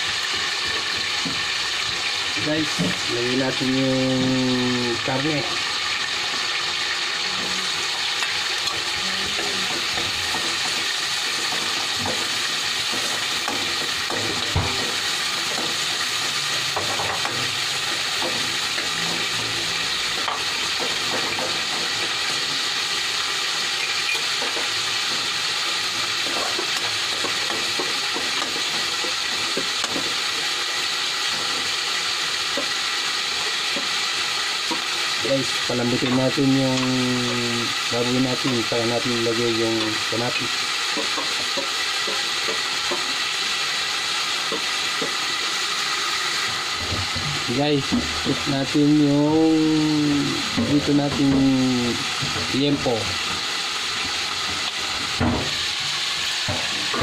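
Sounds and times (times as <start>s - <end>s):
meat sizzling in hot oil: 0.0s - 57.0s
metal spoon tapping a wok: 8.2s - 16.0s, 23.8s - 30.1s, 40.9s - 43.2s.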